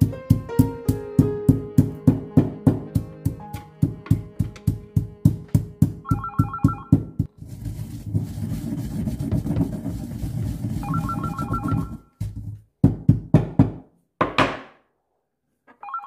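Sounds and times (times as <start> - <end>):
pestle knocking on mortar: 0.0 - 7.4, 8.1 - 14.7
pestle grinding seeds: 0.0 - 13.3
electronic ringing tone: 6.1 - 7.1, 10.8 - 12.1, 15.7 - 16.0.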